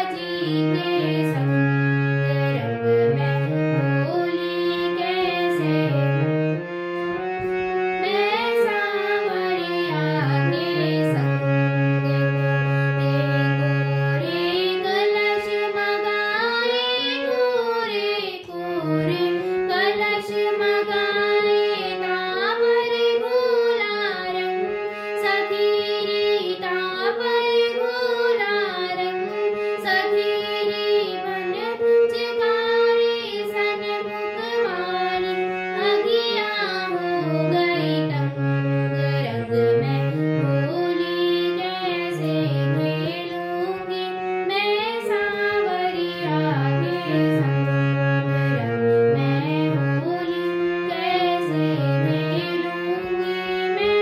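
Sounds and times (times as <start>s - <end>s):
girl singing: 0.0s - 6.1s, 7.2s - 54.0s
harmonium chords: 0.0s - 54.0s.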